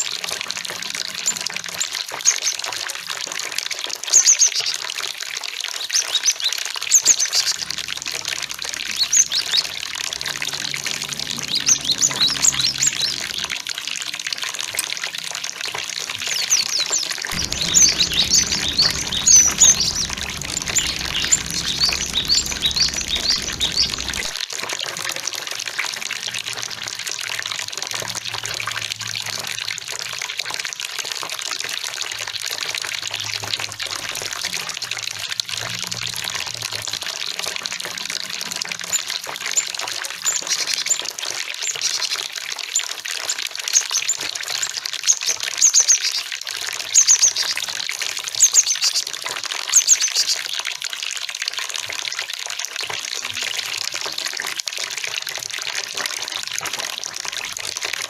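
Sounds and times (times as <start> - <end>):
flowing water rushing: 7.0 - 14.6, 16.5 - 24.4
bird chirping: 8.8 - 13.5, 17.3 - 24.4.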